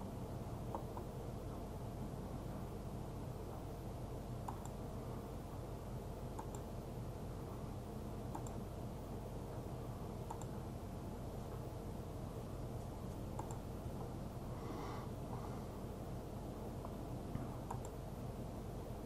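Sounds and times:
steady low hum: 0:00.0 - 0:19.0
computer mouse clicks: 0:00.7 - 0:01.1, 0:04.4 - 0:04.8, 0:06.3 - 0:06.7, 0:08.3 - 0:08.6, 0:10.2 - 0:10.6, 0:13.1 - 0:13.7, 0:16.8 - 0:18.0.

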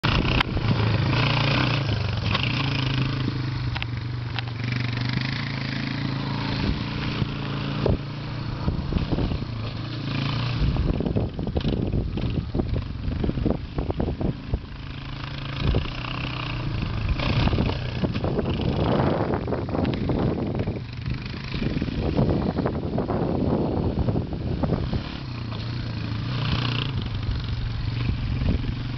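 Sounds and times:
atv engine running: 0:00.0 - 0:28.9.

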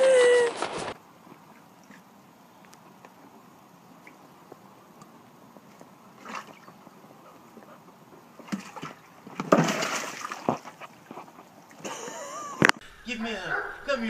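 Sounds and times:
water splashing and sloshing: 0:00.2 - 0:12.8
dog scrambling in water tub: 0:05.7 - 0:11.8.

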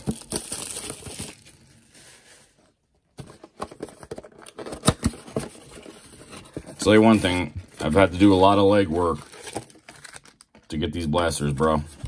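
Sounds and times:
plastic wrapper crinkling and tearing: 0:00.0 - 0:02.6, 0:07.7 - 0:10.8.

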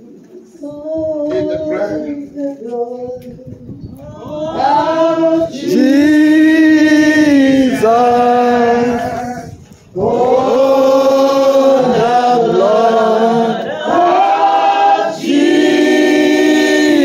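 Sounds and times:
man singing through microphone: 0:00.6 - 0:03.8, 0:04.4 - 0:14.2.

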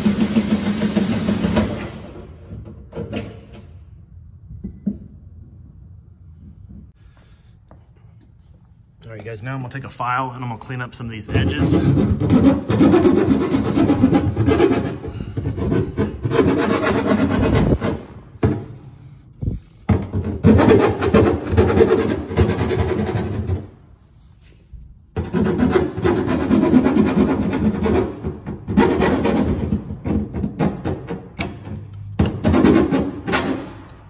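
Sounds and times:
hand file scraping sheet metal: 0:11.3 - 0:18.9, 0:19.7 - 0:23.7, 0:25.1 - 0:33.7.

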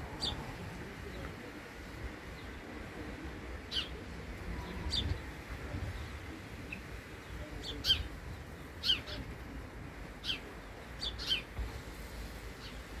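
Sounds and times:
sparrow chirping: 0:03.7 - 0:04.0, 0:04.6 - 0:05.3, 0:06.7 - 0:09.2, 0:10.1 - 0:11.6.

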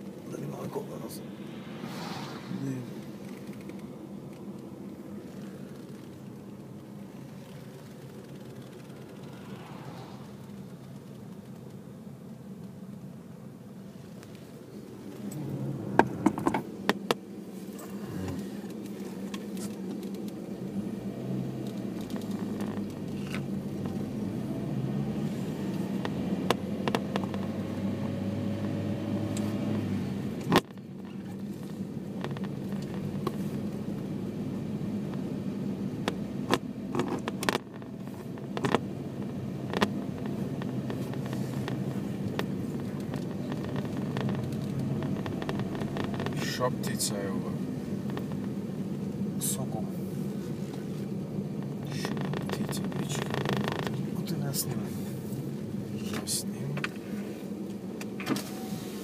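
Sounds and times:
car engine hum: 0:00.0 - 0:59.0
road noise: 0:00.0 - 0:59.0
sharp clicks and knocks: 0:16.0 - 0:17.2, 0:26.0 - 0:28.7, 0:32.2 - 0:33.4, 0:36.0 - 0:46.5.

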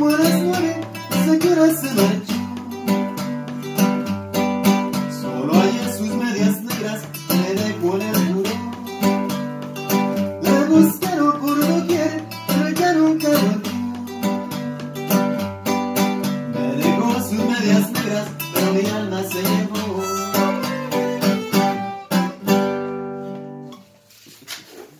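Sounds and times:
acoustic guitar strumming: 0:00.0 - 0:24.2
violin sliding melody: 0:19.9 - 0:22.9.

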